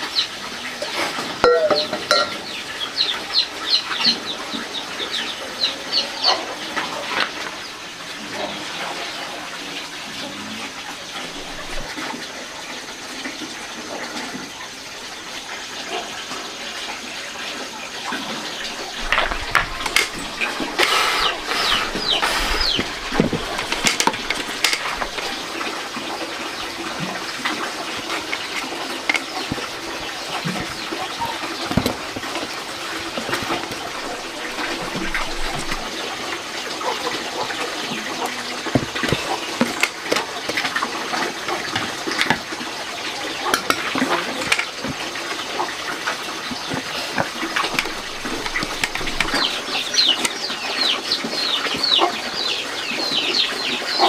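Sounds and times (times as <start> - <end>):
chickens clucking: 0.0 - 54.0
knocks and clatter: 18.7 - 25.4, 38.6 - 40.8.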